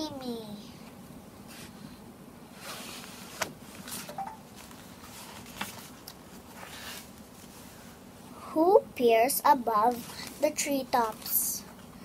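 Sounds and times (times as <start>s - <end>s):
cardboard pages rustling: 2.7s - 7.6s.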